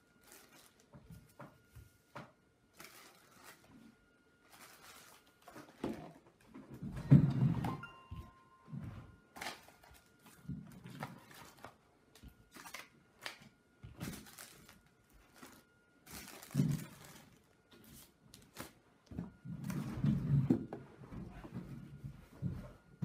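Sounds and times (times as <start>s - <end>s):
plastic wrapping crinkling: 0.0s - 1.4s, 2.7s - 6.4s, 9.3s - 18.8s.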